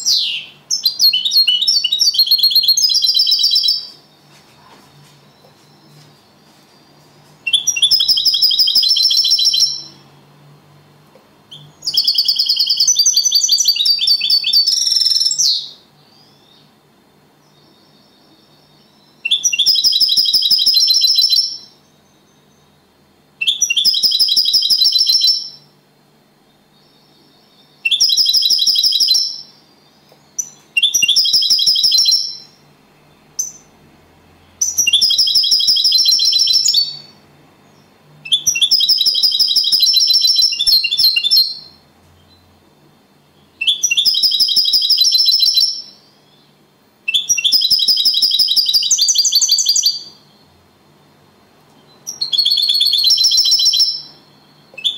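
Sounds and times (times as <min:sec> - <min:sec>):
goldfinch singing trilled phrases: 0:00.0 - 0:03.9, 0:07.5 - 0:10.0, 0:19.0 - 0:21.7, 0:30.4 - 0:32.6, 0:34.6 - 0:37.1, 0:38.3 - 0:42.4, 0:43.5 - 0:46.4, 0:52.1 - 0:54.9.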